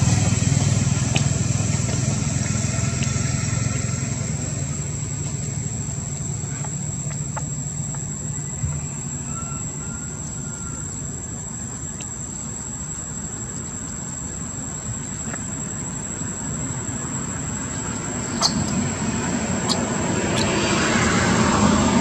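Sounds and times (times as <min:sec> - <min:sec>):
low outdoor rumble: 0:00.0 - 0:22.0
faint high whine: 0:08.3 - 0:15.4.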